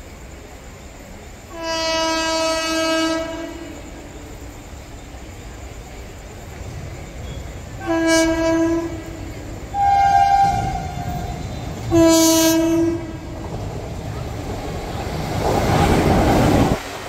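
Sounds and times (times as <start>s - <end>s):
train rushing through platform: 0.0s - 17.0s
locomotive horn blasts: 1.5s - 4.0s, 7.8s - 13.4s.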